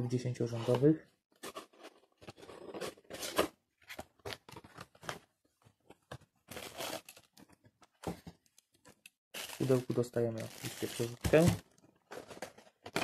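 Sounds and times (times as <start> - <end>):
packaging rustling: 9.4 - 13.0.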